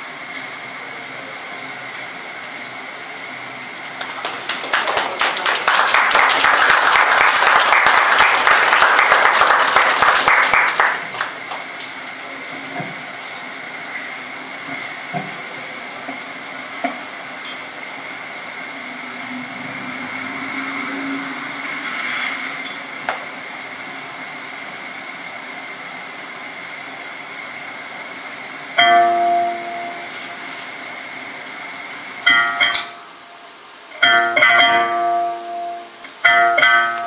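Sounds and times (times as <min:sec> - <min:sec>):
steady hum with high whine: 0:00.0 - 0:37.0
audience applause: 0:03.8 - 0:12.2.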